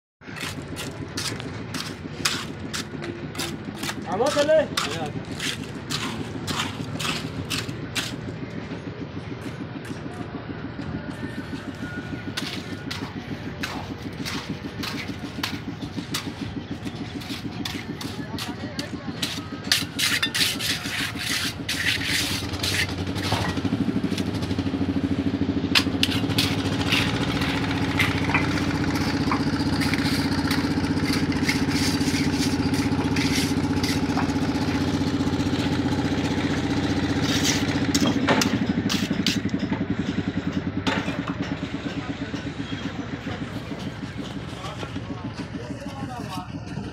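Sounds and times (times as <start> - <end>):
engine running: 0.2 - 46.9
trowel scraping wet concrete: 0.3 - 8.2, 12.4 - 24.5, 25.7 - 40.1.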